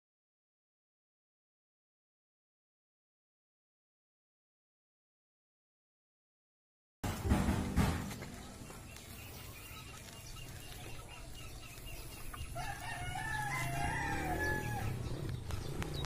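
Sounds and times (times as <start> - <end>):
rooster crowing: 12.6 - 15.1.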